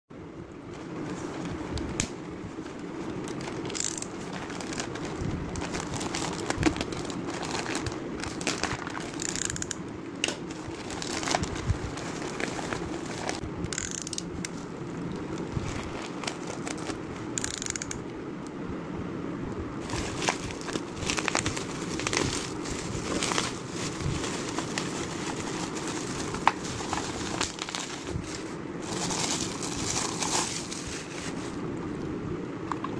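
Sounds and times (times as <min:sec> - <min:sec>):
steady low hum: 0:00.1 - 0:32.9
bubble wrap crinkling: 0:00.8 - 0:09.4, 0:10.4 - 0:13.4, 0:14.5 - 0:17.2, 0:19.8 - 0:31.6
plastic bag tearing and crinkling: 0:03.3 - 0:09.3, 0:10.4 - 0:13.4, 0:15.2 - 0:17.1, 0:19.8 - 0:31.5.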